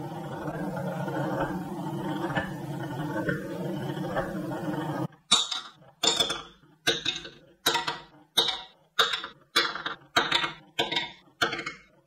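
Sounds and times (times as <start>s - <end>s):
marbles clacking into wooden bowl: 5.2s - 12.0s.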